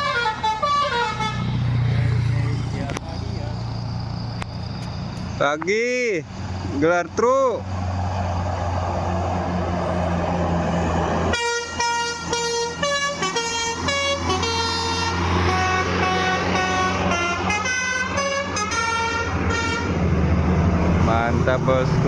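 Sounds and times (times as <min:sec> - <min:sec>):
musical air horn melody: 0:00.0 - 0:01.5, 0:11.3 - 0:20.0
bus engine drone: 0:00.0 - 0:22.0.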